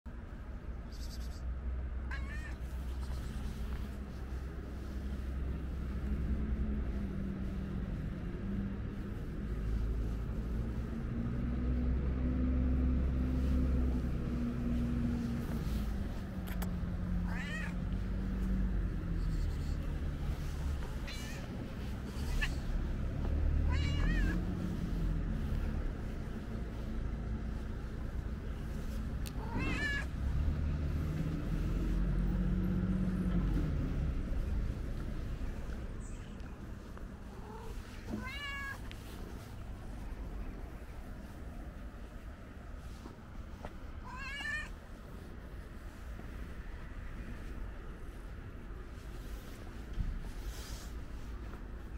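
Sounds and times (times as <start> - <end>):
low engine rumble: 0.1 - 51.9
cat meowing: 2.1 - 3.2, 17.1 - 17.9, 20.9 - 22.7, 23.5 - 24.4, 29.3 - 30.1, 37.4 - 38.9, 44.0 - 44.8.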